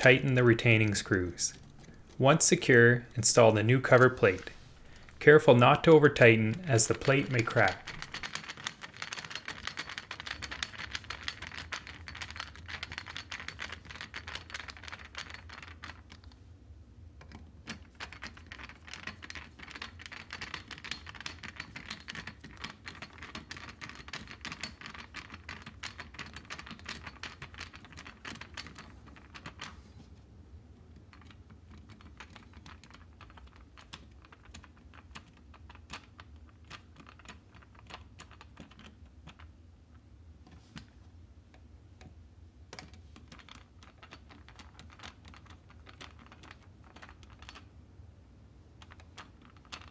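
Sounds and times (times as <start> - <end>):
screwdriver clicking and scraping metal: 3.4 - 13.5.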